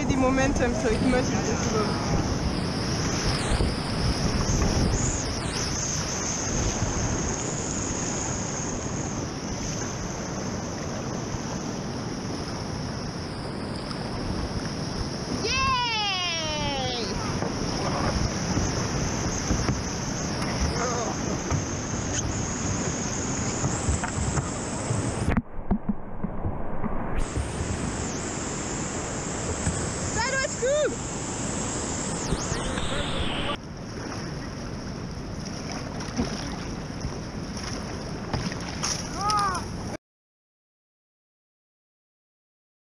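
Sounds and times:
wind buffeting microphone: 0.0 - 12.7
wind on microphone: 0.0 - 40.0
river water rushing: 27.2 - 39.8.

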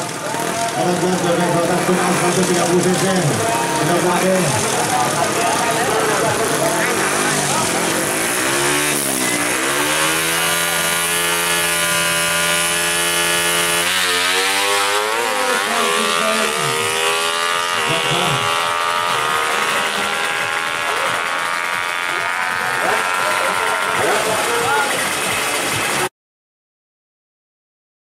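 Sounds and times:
motorcycle engine revving and accelerating: 0.0 - 26.1.

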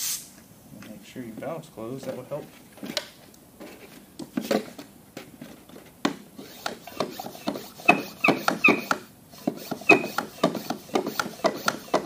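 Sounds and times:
hand pump strokes: 6.4 - 12.0
pump squeaking: 6.4 - 12.0
pump sprayer knocking: 6.5 - 12.0.

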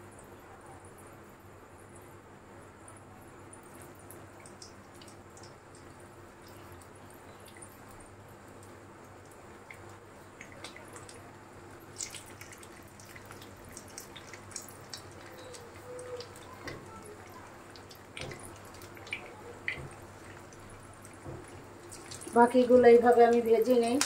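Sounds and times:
oil popping and crackling: 3.8 - 24.0
meat sizzling in oil: 11.8 - 24.0.

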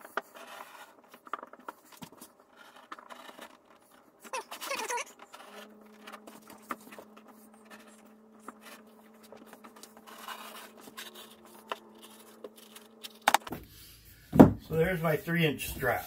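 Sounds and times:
cutter scraping leather: 0.0 - 13.5
steady low hum: 5.2 - 16.0.

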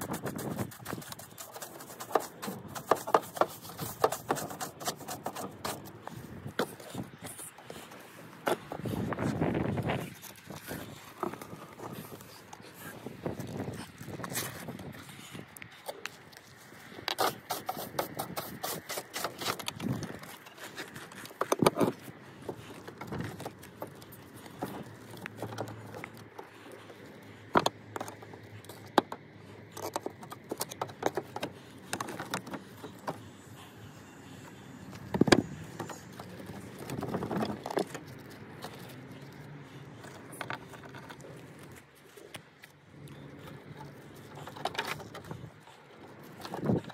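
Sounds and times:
sheet lead scraping and knocking on brick: 0.0 - 7.0.

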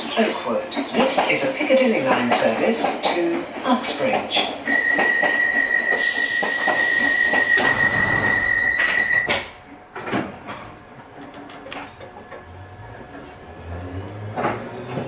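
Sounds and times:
train doors hissing and clunking: 4.4 - 12.1
high-pitched warning tone: 4.7 - 9.4.

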